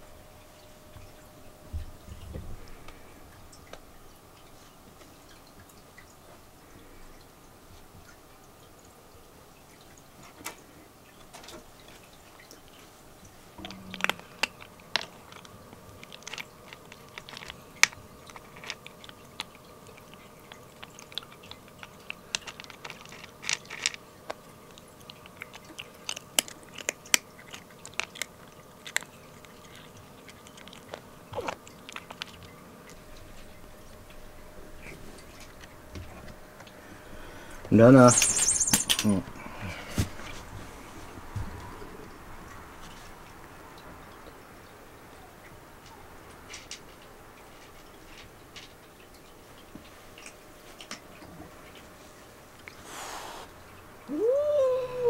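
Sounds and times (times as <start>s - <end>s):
kitten crunching dry kibble: 11.4s - 39.1s.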